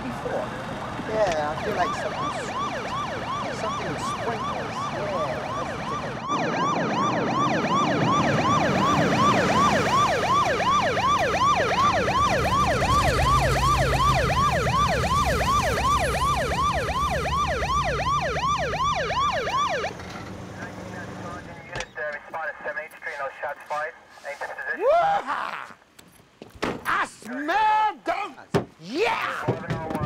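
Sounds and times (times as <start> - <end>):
police siren yelping: 1.3 - 20.0.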